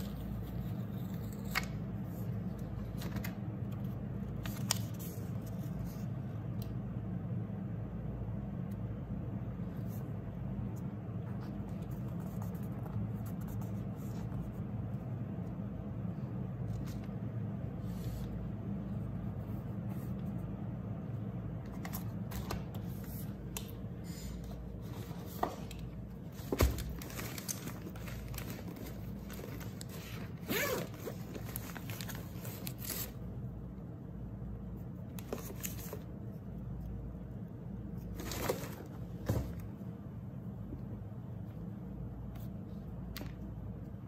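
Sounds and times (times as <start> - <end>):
steady low hum: 0.0 - 44.0
zipper pouch opened and rummaged: 26.4 - 33.2.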